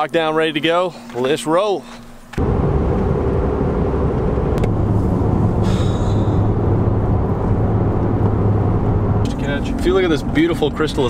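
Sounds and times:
road and engine noise in truck cab: 2.2 - 11.0
low hum: 2.4 - 11.0.

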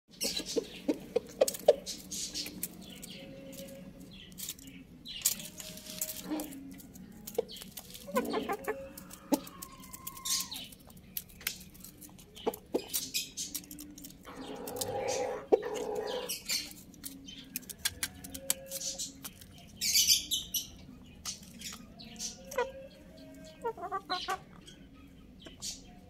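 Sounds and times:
chickens clucking: 0.1 - 26.0
beaks tapping on floor: 0.2 - 24.7
chicken drawn-out call: 8.0 - 10.8, 14.3 - 16.4.

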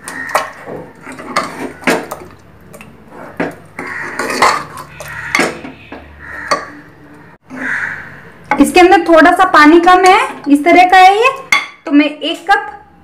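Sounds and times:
ladle scraping a metal pot: 0.0 - 2.4, 3.0 - 6.8.

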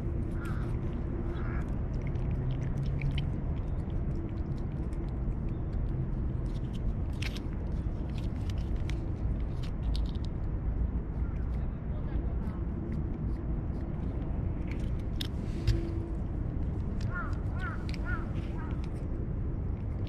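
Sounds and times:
cat licking and smacking: 0.0 - 11.5.

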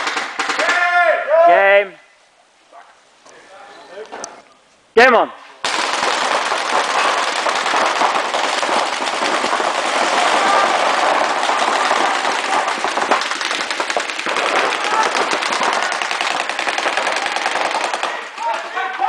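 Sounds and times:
paintball markers firing: 5.6 - 18.9.

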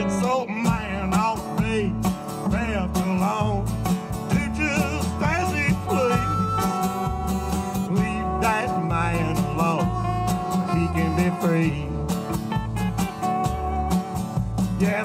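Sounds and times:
bass and drums beat: 0.0 - 15.0
guitar: 0.0 - 15.0
lead instrument bending notes: 4.4 - 15.0.

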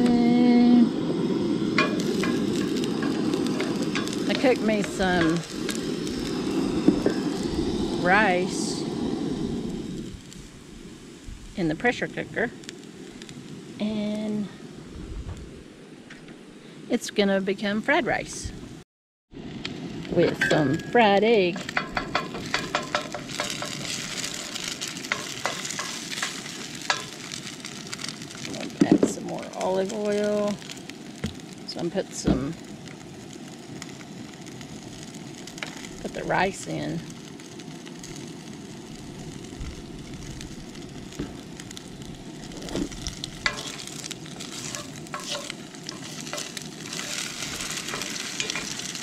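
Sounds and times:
egg sizzling in a skillet: 0.0 - 14.8, 19.4 - 49.0
spatula scraping and tapping pan: 20.3 - 27.3, 42.7 - 48.9.

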